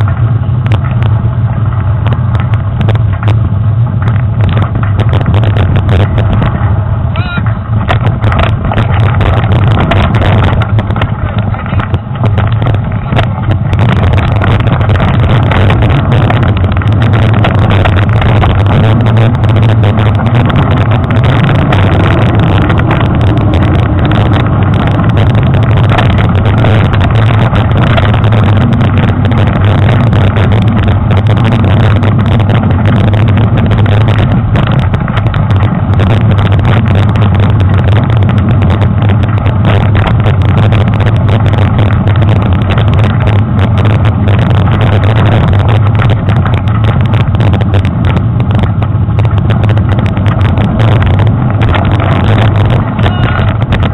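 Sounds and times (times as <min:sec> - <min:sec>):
bike rattling over rough ground: 0:00.0 - 0:53.9
wind on microphone: 0:00.0 - 0:53.9.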